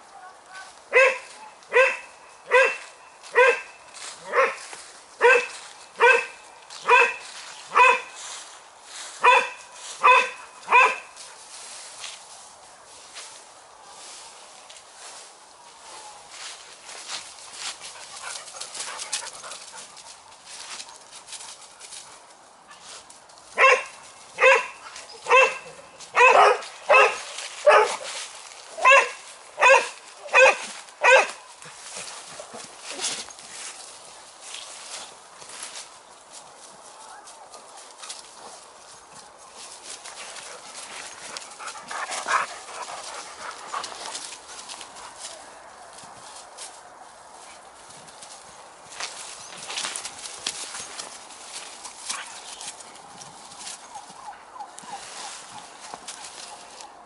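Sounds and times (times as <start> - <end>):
dog barking: 0.9 - 4.6, 5.2 - 8.2, 9.2 - 11.1, 23.6 - 28.1, 28.8 - 31.4.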